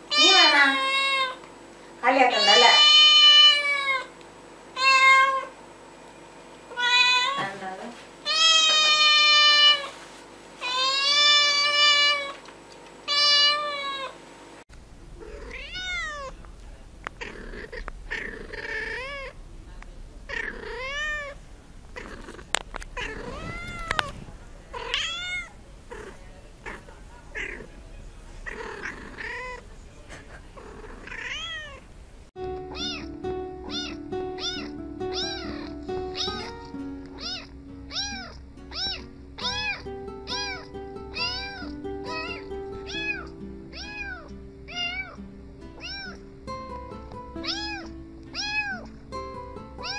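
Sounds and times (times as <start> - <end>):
cat long loud meows: 13.1 - 14.1, 15.2 - 16.4.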